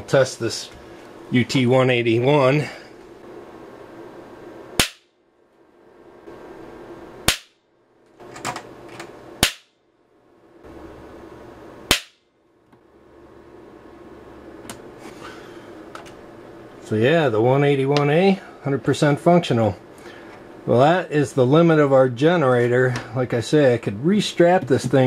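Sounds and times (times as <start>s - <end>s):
electrical hum: 0.0s - 25.0s
high-voltage sharp cracks: 4.8s - 5.1s, 7.2s - 7.6s, 9.4s - 9.8s, 11.9s - 12.3s.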